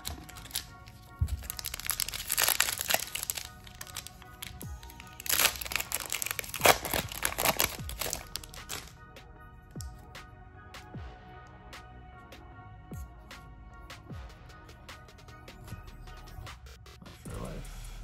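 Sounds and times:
plastic wrapper ripping and crinkling: 0.0 - 8.9.

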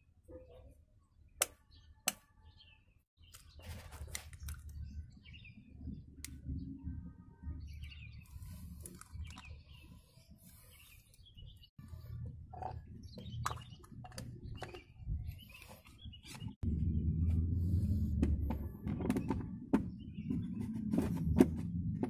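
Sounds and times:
small birds chirping: 0.3 - 21.6
eggshell crackling and scraping: 8.1 - 16.6.

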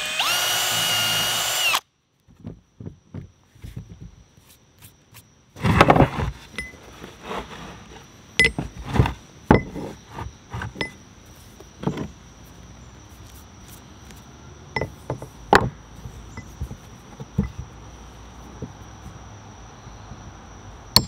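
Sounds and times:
crickets trilling: 0.0 - 21.0
metal head set down on wood: 8.4 - 10.0, 11.8 - 12.2, 14.8 - 15.8.

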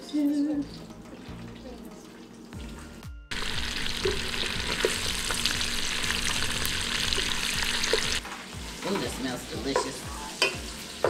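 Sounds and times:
meat sizzling in hot oil: 3.3 - 11.0.

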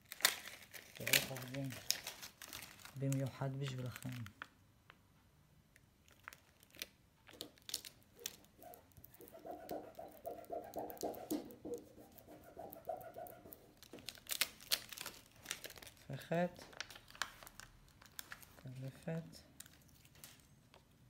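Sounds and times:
plastic film crinkling: 0.0 - 4.6, 6.0 - 9.8, 13.4 - 20.7
plastic film squeaking when rubbed: 7.3 - 16.0.

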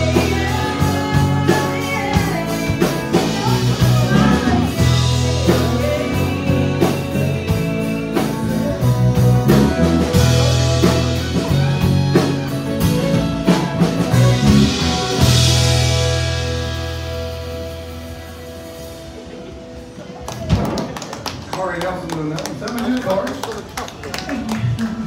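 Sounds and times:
woman singing: 0.0 - 11.0
country band playing: 0.0 - 25.0.

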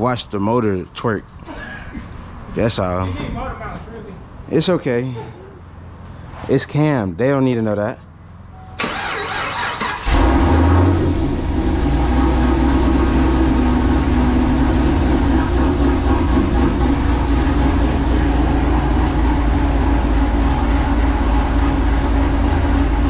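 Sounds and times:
car engine idling with lumpy lope: 8.0 - 23.0.

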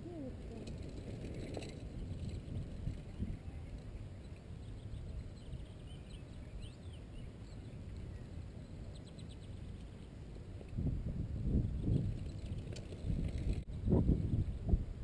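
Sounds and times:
wind noise on microphone: 0.0 - 15.0
faint bird chirps: 3.4 - 10.1.

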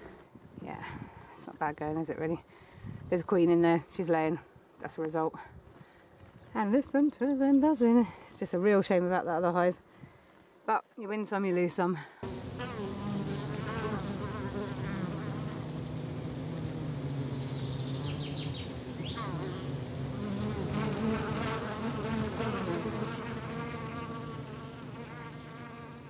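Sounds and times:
bees buzzing: 12.2 - 26.0.

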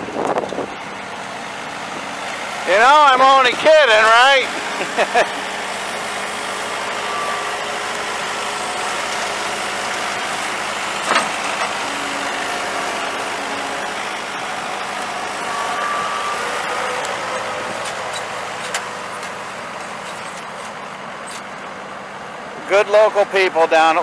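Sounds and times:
engine running: 0.0 - 24.0.

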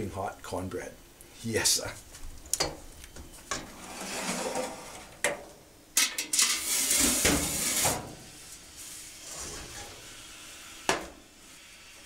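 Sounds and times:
pots scraping on stove: 3.5 - 5.4, 6.0 - 10.8
metal pots clanking: 6.0 - 7.6.

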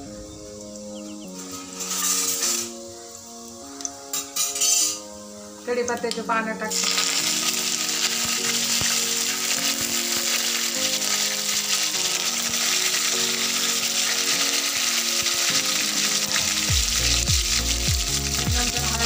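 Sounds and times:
background music: 0.0 - 19.0
spices sizzling in hot oil: 0.2 - 19.0.

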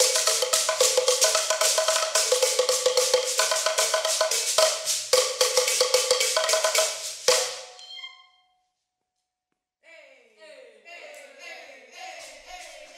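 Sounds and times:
fast percussion with sticks: 0.0 - 7.8.

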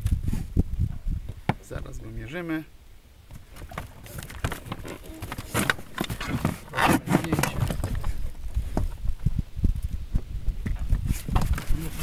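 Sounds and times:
knocks and thumps in boat: 3.3 - 9.0.

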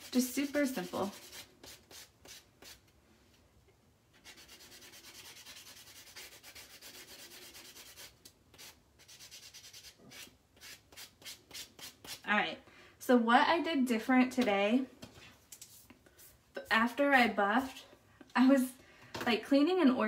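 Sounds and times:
nail file rubbing fingernail: 4.2 - 12.3.

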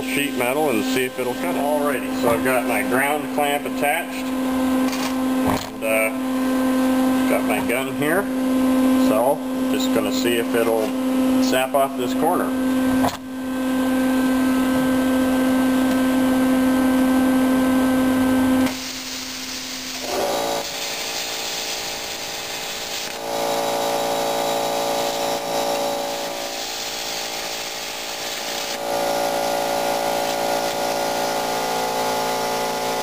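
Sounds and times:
plasma cutter humming: 0.0 - 33.0
plasma arc hissing: 18.6 - 33.0.

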